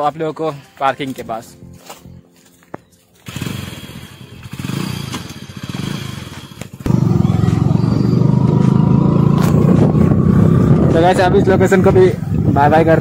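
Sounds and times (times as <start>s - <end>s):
engine running with rapid pulsing: 3.2s - 11.6s.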